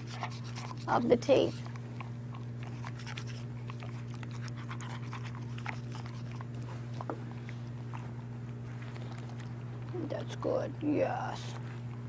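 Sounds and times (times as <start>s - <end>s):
teeth brushing: 0.0s - 1.8s, 2.6s - 6.5s
dog mouth clicking and smacking: 0.0s - 10.0s
steady low hum: 0.0s - 12.0s.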